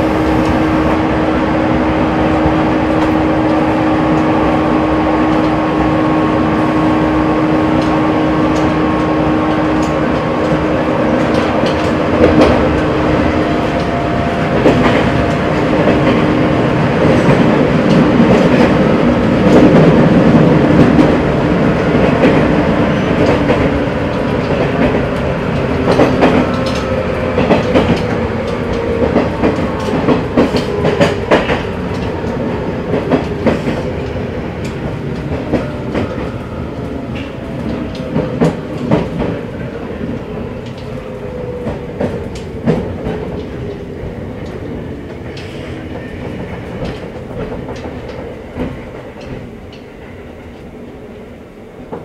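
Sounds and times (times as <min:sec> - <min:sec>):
train running rumble: 0:00.0 - 0:52.0
wheels clicking over rail joints: 0:17.0 - 0:49.9.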